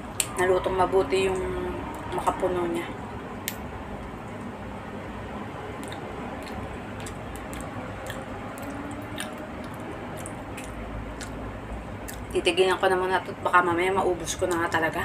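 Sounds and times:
soft wet chewing: 5.8 - 12.3.

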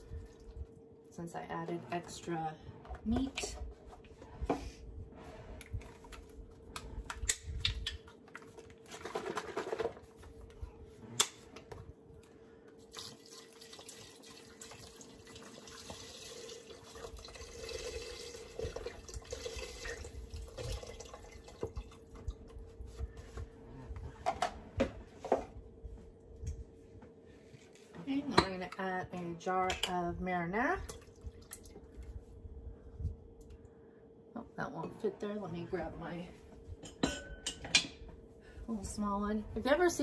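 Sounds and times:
liquid pouring into metal pot: 12.9 - 22.1.

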